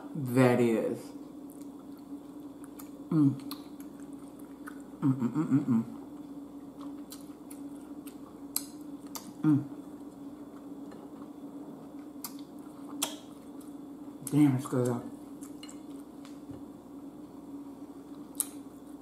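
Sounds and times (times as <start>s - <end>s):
steady low hum: 0.0s - 19.0s
chewing food: 1.2s - 5.0s, 5.8s - 16.5s
person humming mm: 3.1s - 3.6s, 5.0s - 6.0s, 9.4s - 9.8s
wet mouth clicks: 12.2s - 13.2s, 18.3s - 18.6s.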